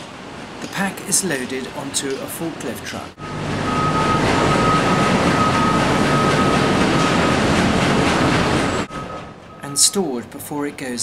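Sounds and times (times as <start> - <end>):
sawmill machinery noise: 0.4 - 10.4
forklift truck running: 3.1 - 10.5.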